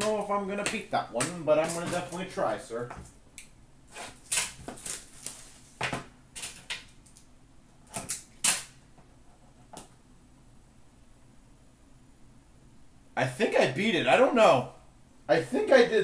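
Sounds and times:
packaging crackling and snapping: 0:04.0 - 0:05.8, 0:06.4 - 0:07.3.

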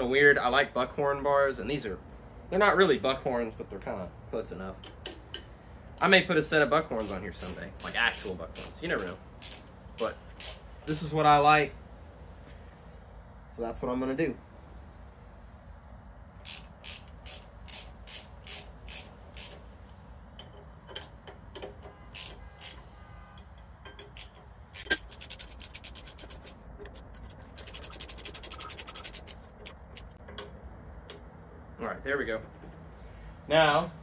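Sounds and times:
hand ratchet clicking: 0:07.0 - 0:11.0, 0:16.4 - 0:19.7, 0:20.4 - 0:22.8, 0:23.8 - 0:30.5.

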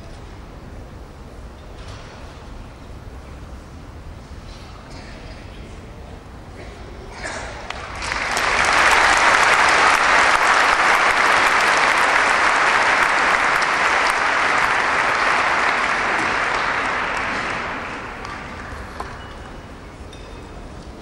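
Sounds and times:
audience applauding: 0:07.6 - 0:19.5.

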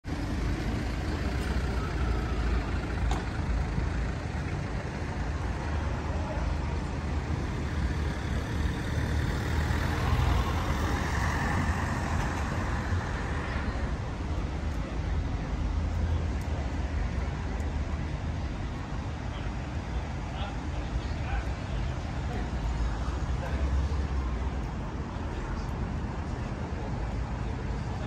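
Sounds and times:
cars driving past: 0:00.0 - 0:28.0
road traffic rumble: 0:00.0 - 0:28.0.

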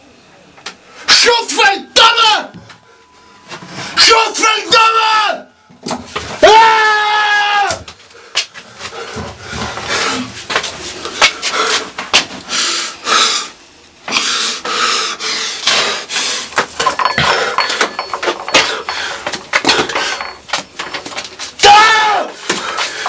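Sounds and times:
man breathing heavily: 0:08.0 - 0:20.4, 0:22.4 - 0:23.0
man crying out: 0:21.6 - 0:22.4.

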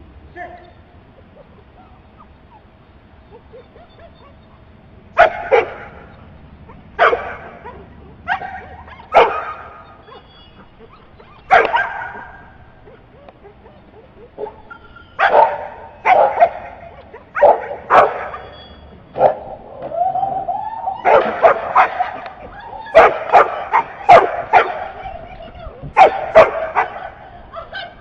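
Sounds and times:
dog barking sharply: 0:07.0 - 0:07.7, 0:08.3 - 0:09.8, 0:11.5 - 0:12.5, 0:17.4 - 0:18.4, 0:21.1 - 0:22.4, 0:23.0 - 0:24.9, 0:26.0 - 0:27.2.

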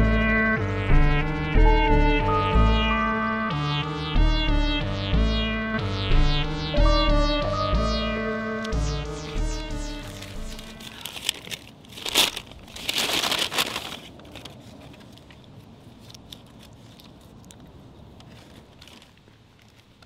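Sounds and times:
synthesizer music: 0:00.0 - 0:11.2
bag crinkling: 0:10.8 - 0:14.8.

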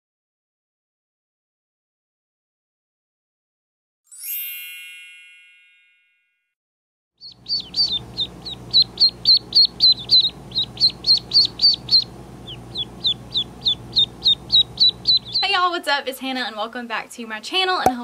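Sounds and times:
bright chime ringing: 0:04.1 - 0:06.4
ducklings peeping: 0:07.2 - 0:15.8.

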